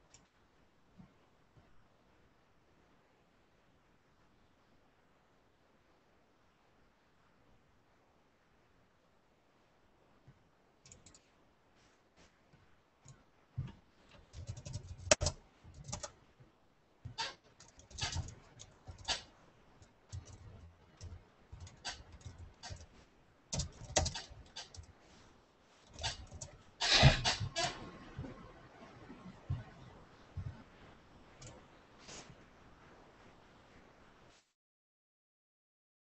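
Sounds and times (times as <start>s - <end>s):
computer keyboard typing: 10.9s - 11.2s, 14.1s - 16.2s, 17.2s - 19.2s, 20.1s - 22.9s, 23.5s - 24.9s, 25.9s - 26.6s.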